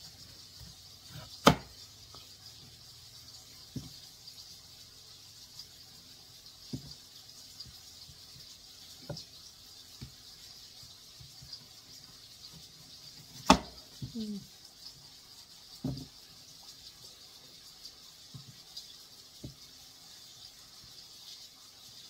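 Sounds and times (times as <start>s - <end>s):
faint steady hiss: 0.0s - 22.0s
knife knocking on cutting board: 1.4s - 1.7s.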